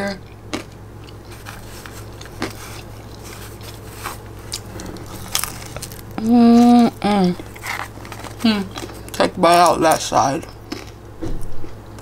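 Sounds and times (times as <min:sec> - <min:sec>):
person humming: 0:06.2 - 0:07.4.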